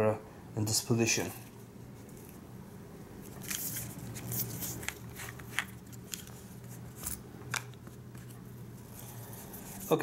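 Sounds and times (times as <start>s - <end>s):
rustling handling noise: 3.2s - 10.0s.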